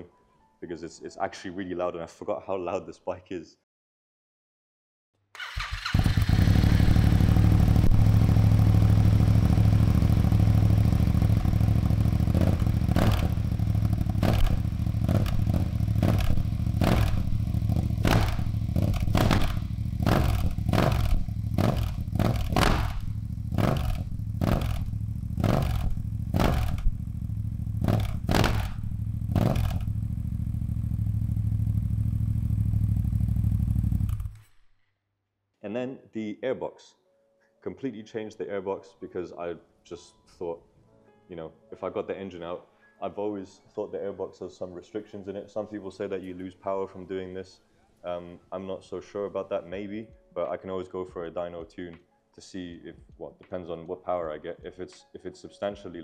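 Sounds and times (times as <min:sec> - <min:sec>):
motorcycle engine revving: 0:05.4 - 0:34.4.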